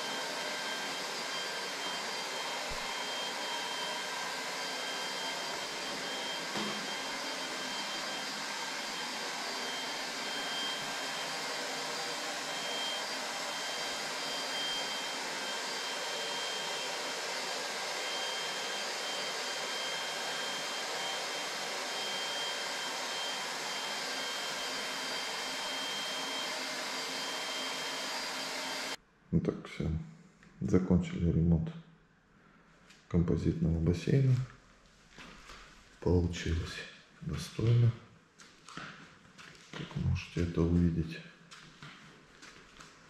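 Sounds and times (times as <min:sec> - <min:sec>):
electric blower motor whirring: 0:00.0 - 0:29.0.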